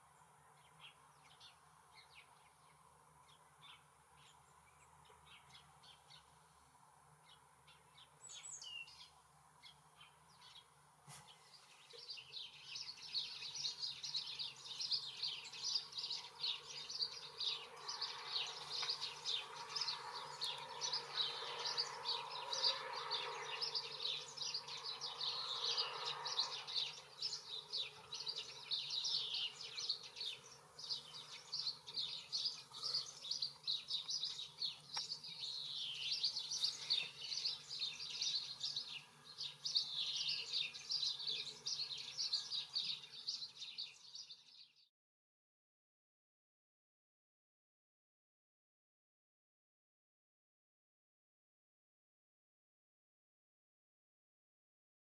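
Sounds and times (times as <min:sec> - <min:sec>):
songbirds chirping and twittering: 0:00.0 - 0:44.9.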